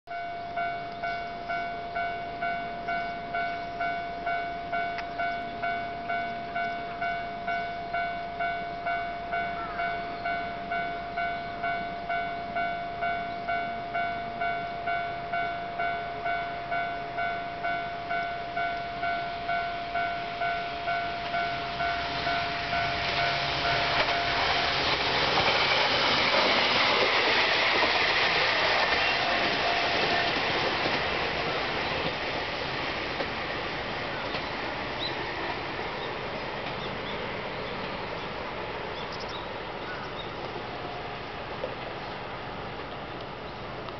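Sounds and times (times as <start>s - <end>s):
electric train passing: 0.1s - 43.9s.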